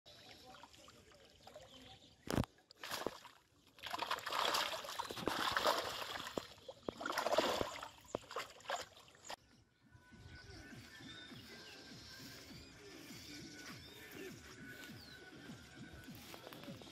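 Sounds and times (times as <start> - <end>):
water splashing and sloshing: 0.1 - 9.4.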